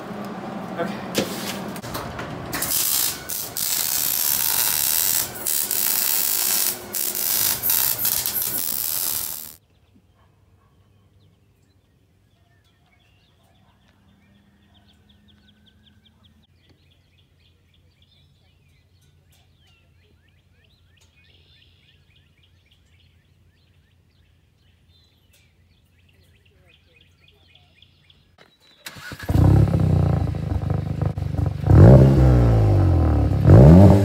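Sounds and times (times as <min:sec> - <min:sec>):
reciprocating saw cutting metal pipe: 0:02.6 - 0:09.6
birds chirping: 0:02.8 - 0:29.6.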